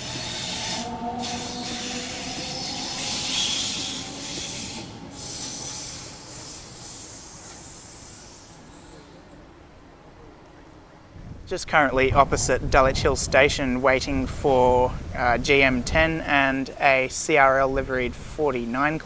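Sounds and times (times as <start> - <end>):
electric train pulling out: 0.0 - 9.7
rolling rail noise: 0.0 - 19.0.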